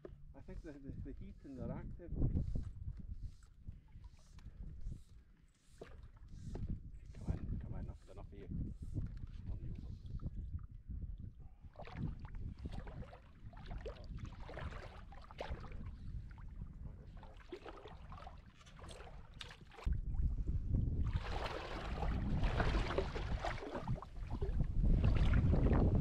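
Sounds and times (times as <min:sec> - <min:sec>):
wind rumbling on microphone: 0:00.3 - 0:05.2, 0:06.1 - 0:26.0
water splashes and knocks: 0:05.7 - 0:07.8, 0:11.8 - 0:20.0, 0:21.0 - 0:26.0.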